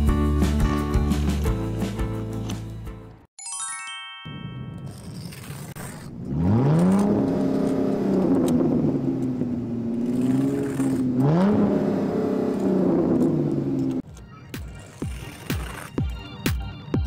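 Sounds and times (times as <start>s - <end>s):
car engine revving: 5.8s - 14.0s.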